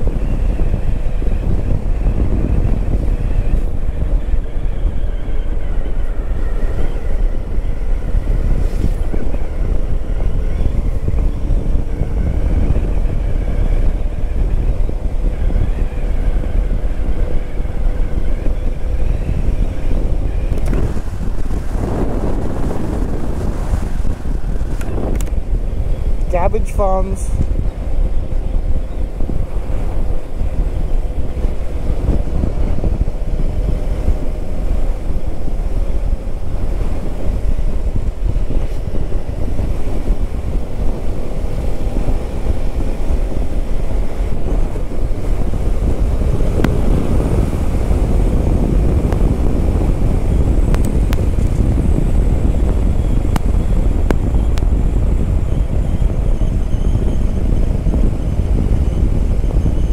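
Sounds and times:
motorcycle engine running: 0:00.0 - 0:26.7, 0:27.4 - 0:59.9
wind buffeting microphone: 0:00.0 - 0:59.9.

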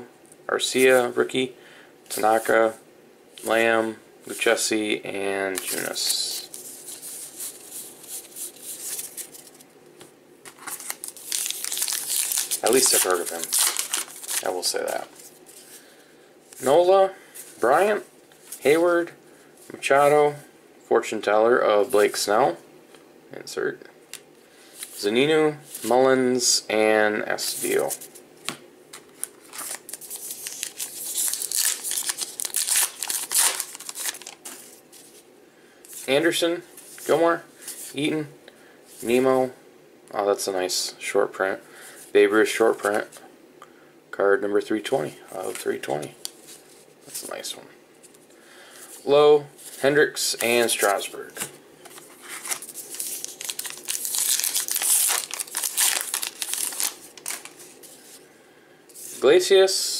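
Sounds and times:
card pack wrapper tearing and crinkling: 0:10.5 - 0:15.3, 0:29.0 - 0:34.7, 0:51.9 - 0:57.7.

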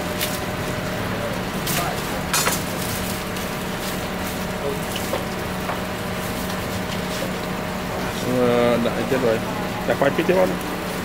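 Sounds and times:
oil sizzling in a wok: 0:00.0 - 0:11.0.

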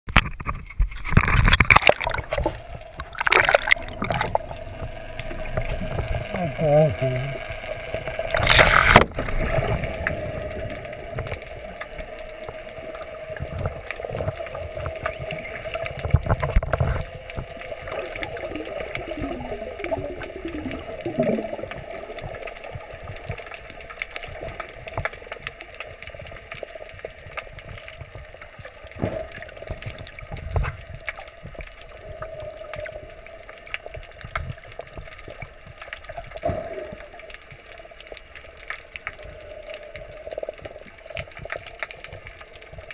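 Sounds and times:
muffled water sloshing: 0:00.5 - 0:26.6
steady hum: 0:02.2 - 0:08.9.

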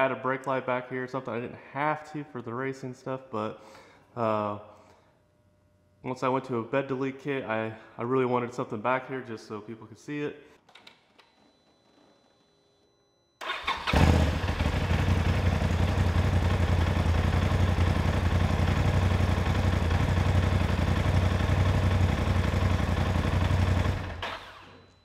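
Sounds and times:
engine winding down: 0:13.4 - 0:24.9
engine starting and idling: 0:13.4 - 0:25.0.

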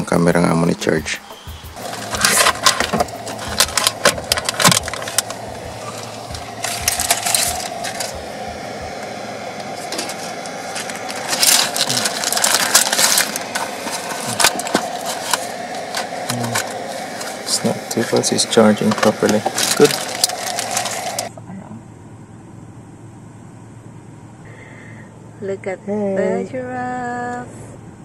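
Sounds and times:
plugs and cables clicking: 0:01.8 - 0:08.2.

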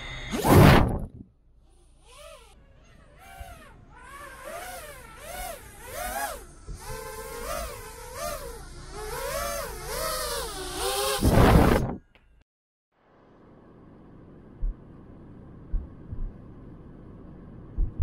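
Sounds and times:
drone motors whining: 0:00.0 - 0:00.5, 0:01.6 - 0:12.0.

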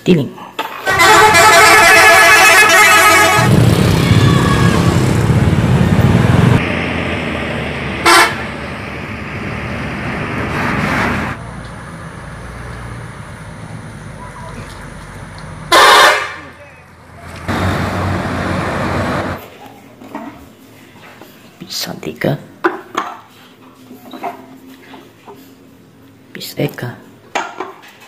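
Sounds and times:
bus engine rumbling: 0:00.0 - 0:20.9
bus horn: 0:00.8 - 0:05.0, 0:08.0 - 0:08.6, 0:15.7 - 0:16.8.

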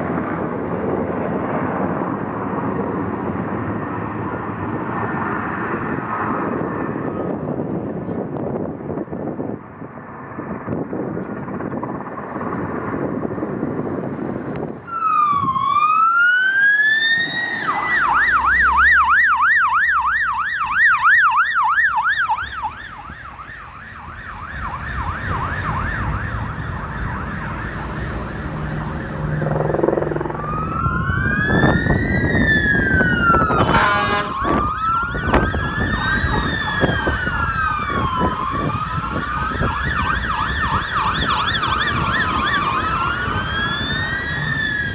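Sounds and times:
engine and tyre noise: 0:00.0 - 0:44.9
fire truck sirens: 0:11.4 - 0:44.9
horn blast: 0:33.6 - 0:34.5.

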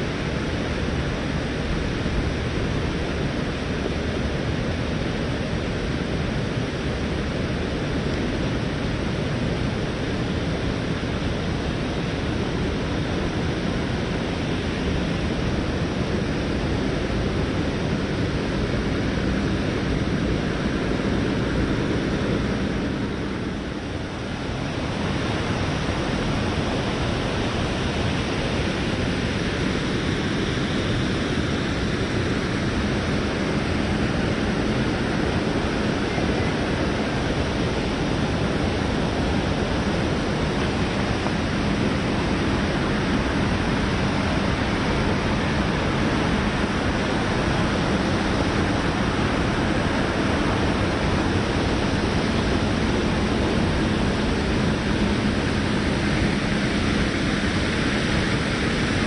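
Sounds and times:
fast-flowing river water: 0:19.8 - 0:59.0.

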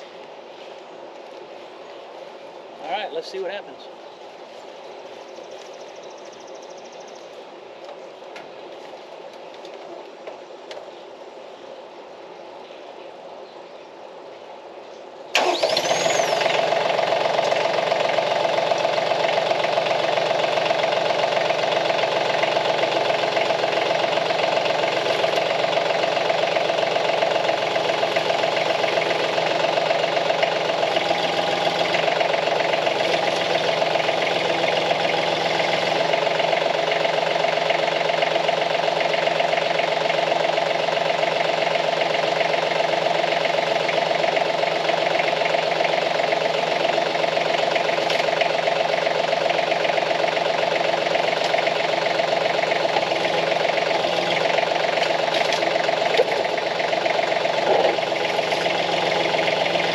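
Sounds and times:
tractor diesel engine running: 0:15.3 - 0:59.9.

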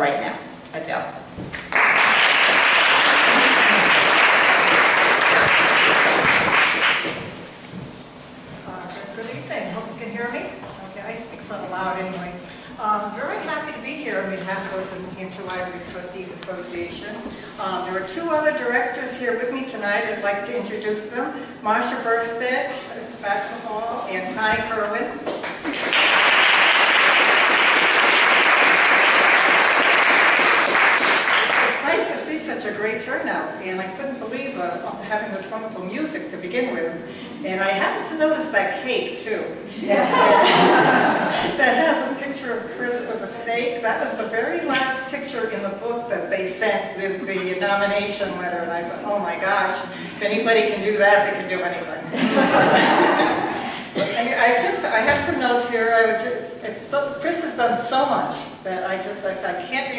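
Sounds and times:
audience applauding: 0:01.6 - 0:07.3, 0:25.5 - 0:31.8.

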